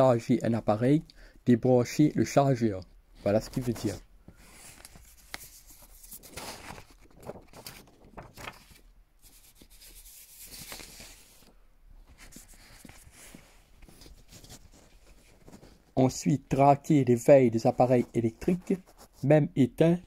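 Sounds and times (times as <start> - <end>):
fabric rubbing against phone: 9.2 - 11.5, 12.1 - 16.0, 17.8 - 19.3.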